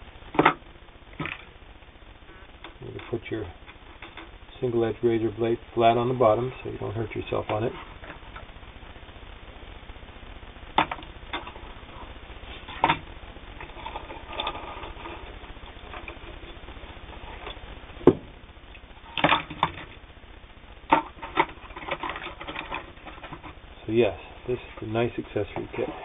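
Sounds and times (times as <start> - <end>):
small objects clicking and knocking: 20.8 - 23.6.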